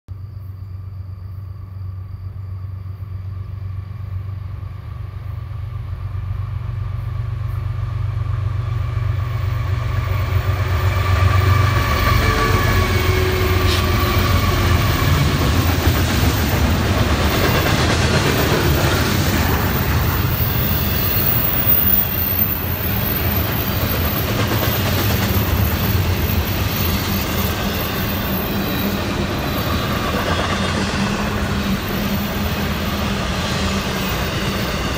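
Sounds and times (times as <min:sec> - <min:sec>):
diesel locomotive drone: 0:00.3 - 0:34.9
freight cars rumbling and clacking: 0:12.8 - 0:34.9.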